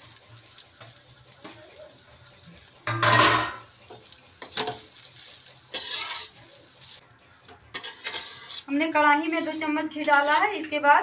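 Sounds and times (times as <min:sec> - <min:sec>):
spatula scraping a pan: 0:02.8 - 0:07.0, 0:07.7 - 0:10.7.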